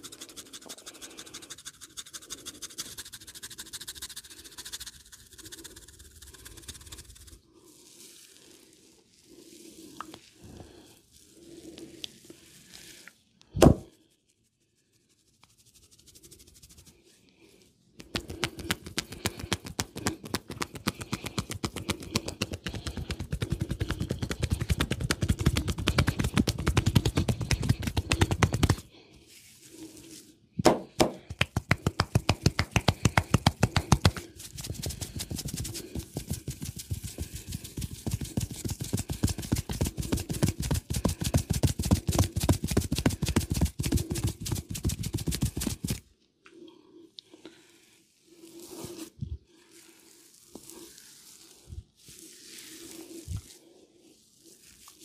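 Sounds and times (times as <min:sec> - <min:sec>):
hands slapping and tapping head: 0:13.6 - 0:13.8, 0:18.0 - 0:28.9, 0:30.6 - 0:46.0.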